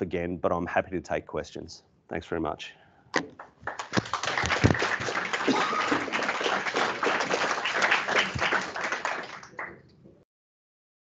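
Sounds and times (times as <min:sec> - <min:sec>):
audience applauding: 0:03.6 - 0:09.8.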